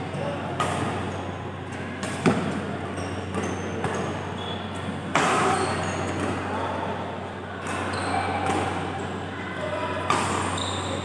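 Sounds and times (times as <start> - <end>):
shoes squeaking on court floor: 2.4 - 6.4, 7.7 - 8.7, 10.2 - 11.0
racket hitting shuttlecock: 5.1 - 5.6.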